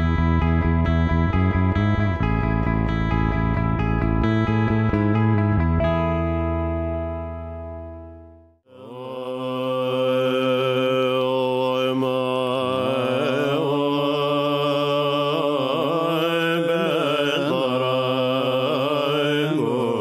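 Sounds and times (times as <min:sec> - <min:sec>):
voices chanting a drone: 0:08.7 - 0:20.0.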